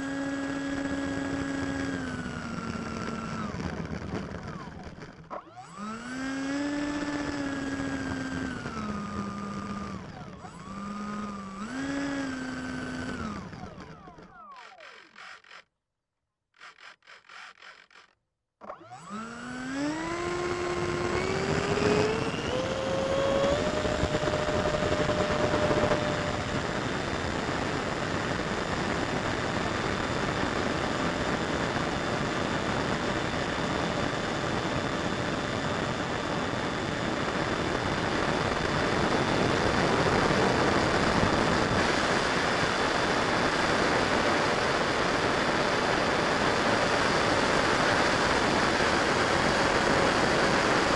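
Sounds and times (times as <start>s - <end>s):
electric ducted fan whine: 0.0s - 14.7s, 18.7s - 50.9s
faint rapid pulsing: 0.8s - 15.7s, 16.6s - 33.4s.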